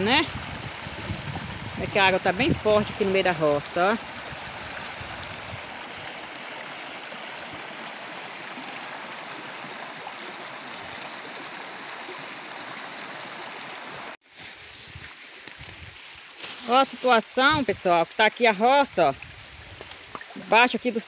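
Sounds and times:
floodwater rushing: 0.0 - 14.2.

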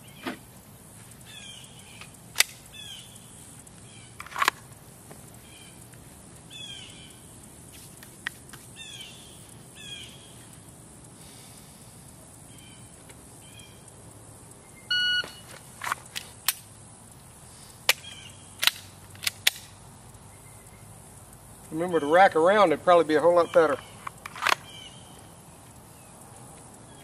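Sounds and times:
birds chirping: 1.2 - 4.2, 5.1 - 7.5, 8.7 - 10.6, 20.2 - 27.0
shot timer beep: 14.9 - 15.4
holster clicks: 17.9 - 19.8, 24.0 - 24.7.

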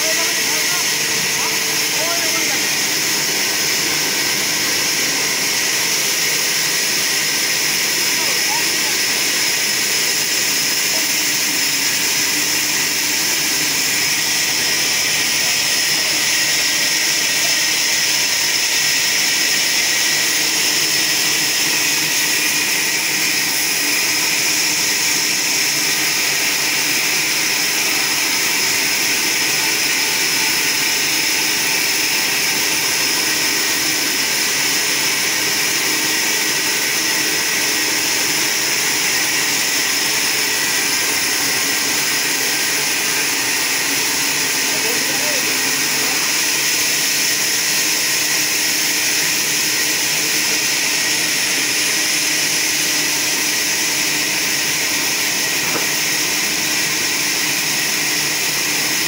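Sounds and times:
mill motor running: 0.0 - 59.0
saw blade whining through wood: 0.0 - 59.0.

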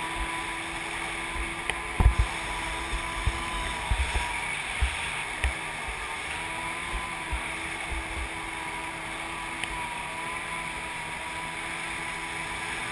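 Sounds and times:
jet ski engine running: 0.0 - 12.9
low thumps: 1.3 - 5.0.

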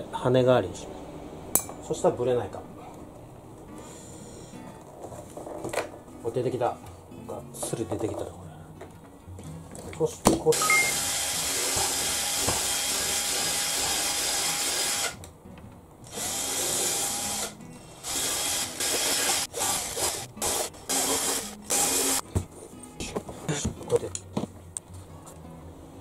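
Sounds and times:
cordless drill drilling: 10.8 - 15.2, 16.1 - 22.2.

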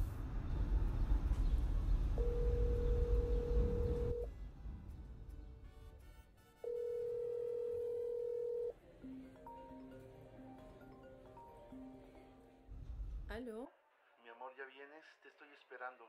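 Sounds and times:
telephone ringback tone: 2.2 - 4.3, 6.6 - 8.8.

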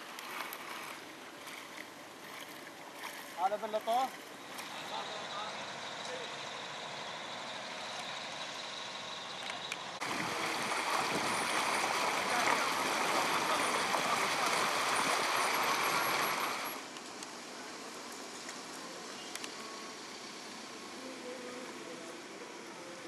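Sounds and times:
water rushing: 10.0 - 16.9.

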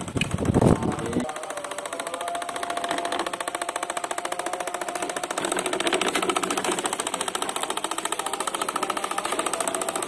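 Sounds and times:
small engine running: 0.0 - 10.0.

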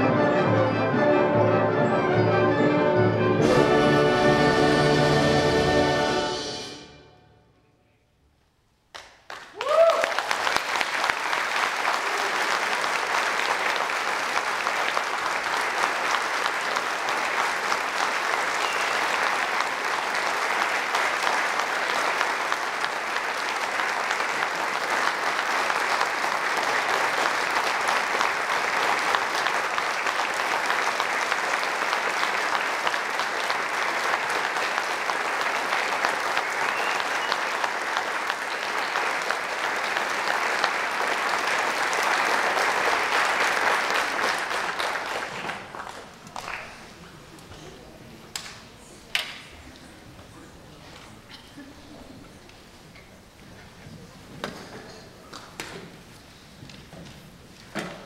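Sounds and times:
audience applauding: 8.9 - 47.2.

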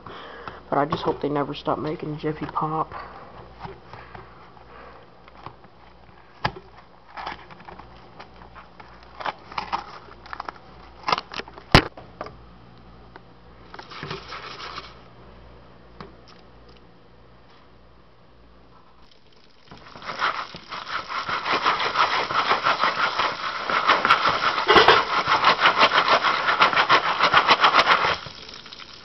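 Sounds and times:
foil crinkling: 7.0 - 7.9, 8.5 - 11.6, 13.7 - 15.0, 19.2 - 29.0.

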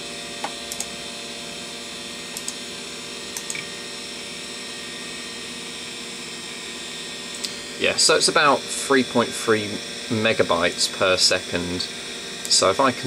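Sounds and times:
computer equipment humming: 0.0 - 13.0
mouse clicks: 2.4 - 2.6.

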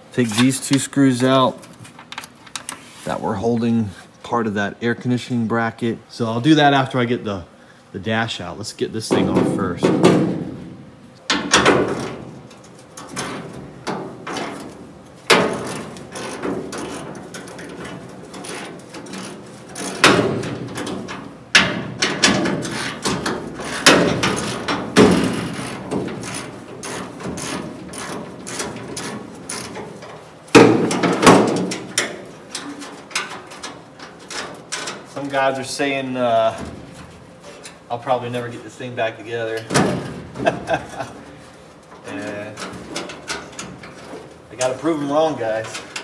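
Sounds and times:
metal clanks and rattles: 9.1 - 38.0, 39.4 - 41.2, 41.8 - 46.0.

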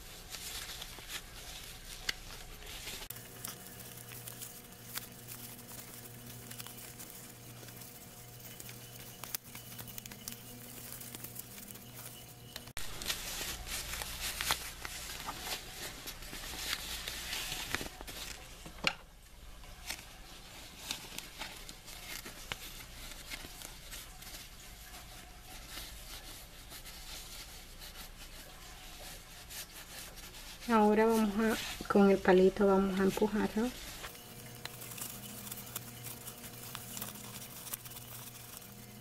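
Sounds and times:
fabric rustling and crinkling: 0.0 - 18.8, 19.6 - 39.0
small ticks: 3.1 - 12.7.

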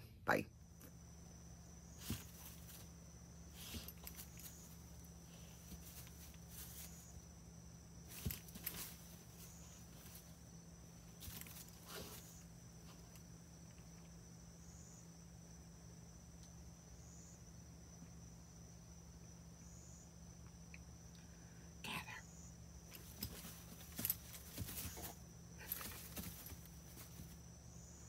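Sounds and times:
faint high whine: 0.0 - 28.0
steady low hum: 0.0 - 28.0
soft handling knocks and rustles: 8.1 - 10.3, 22.9 - 27.4.

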